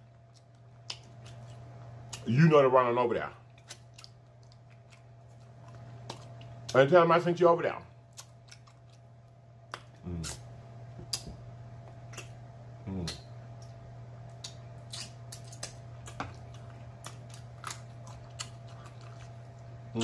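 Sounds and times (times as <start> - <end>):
wet chewing and mouth smacks: 0.2 - 2.3, 3.5 - 6.8, 8.1 - 10.4, 11.0 - 12.4, 13.0 - 19.7
person humming mm: 10.0 - 10.4, 12.8 - 13.2.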